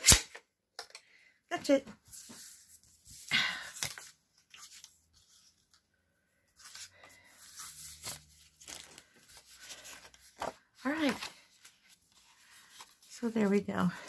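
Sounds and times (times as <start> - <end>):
paper rustling and scraping: 2.0 - 5.8, 6.6 - 14.0.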